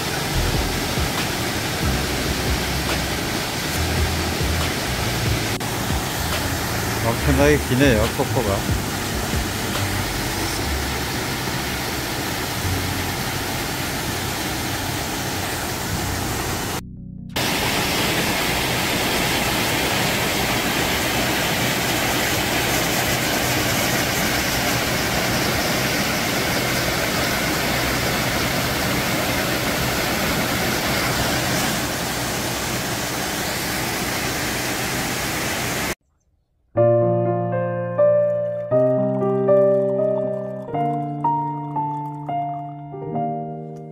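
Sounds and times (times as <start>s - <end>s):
waterfall rushing: 0.0s - 16.8s, 17.4s - 36.0s
piano music: 0.0s - 18.8s, 36.8s - 43.9s.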